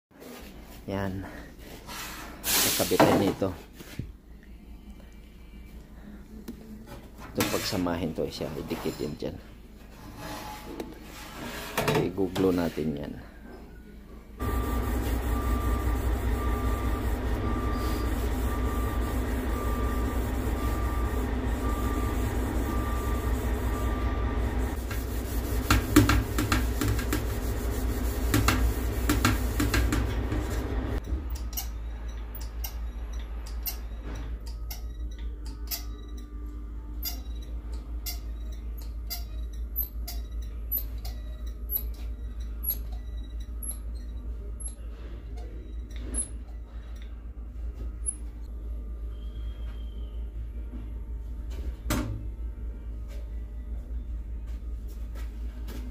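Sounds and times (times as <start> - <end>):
steady shop hum: 0.1 - 55.9
faint beep: 14.4 - 24.3
scuff pad rubbing sheet metal: 15.0 - 30.7.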